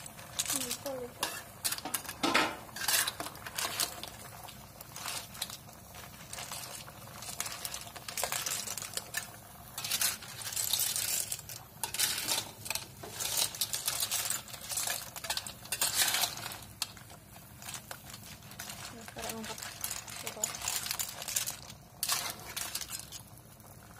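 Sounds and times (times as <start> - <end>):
clam shells clattering in wok: 0.0 - 23.9.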